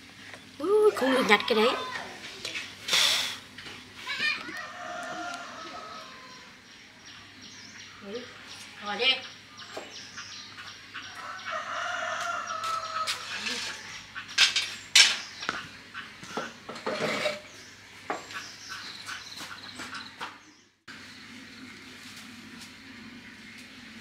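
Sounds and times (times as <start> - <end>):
rooster crowing: 4.4 - 6.6, 11.1 - 14.0.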